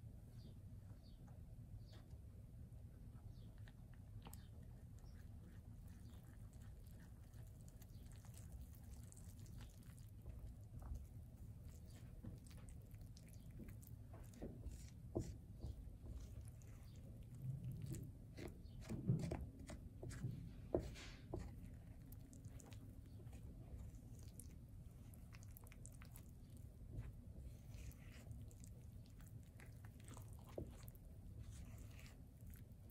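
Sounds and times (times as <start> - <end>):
low steady hum: 0.0 - 32.9
spatula scraping through flour: 13.6 - 24.4, 27.0 - 32.9.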